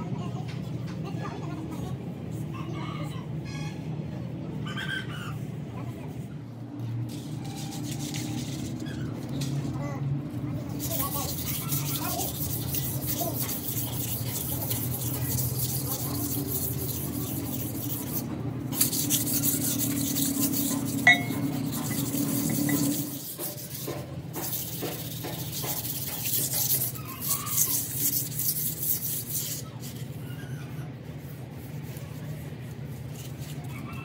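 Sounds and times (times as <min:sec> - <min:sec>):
steady hum: 0:10.3 - 0:25.5
metal scraping and rasping: 0:10.6 - 0:30.2.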